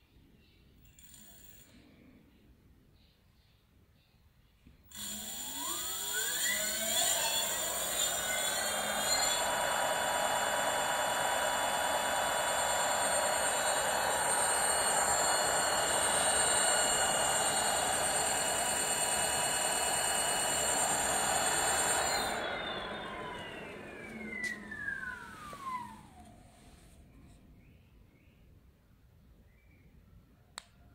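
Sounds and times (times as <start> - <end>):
electric motor whine: 4.9 - 26.4.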